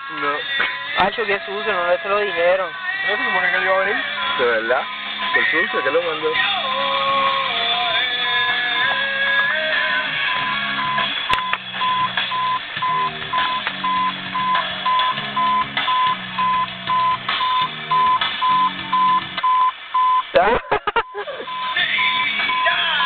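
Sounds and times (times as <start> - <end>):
music from car stereo: 0.0 - 23.0.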